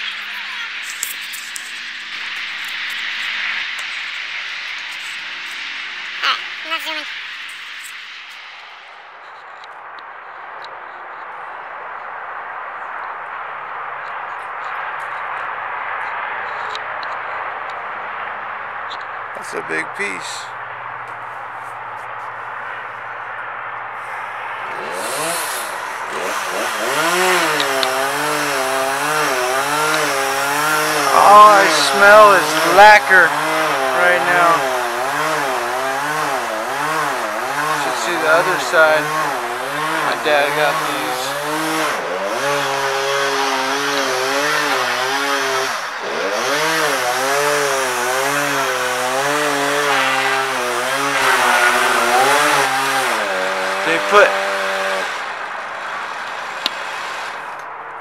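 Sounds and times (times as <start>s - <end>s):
chainsaw revving and cutting: 0.0s - 7.0s, 24.0s - 57.7s.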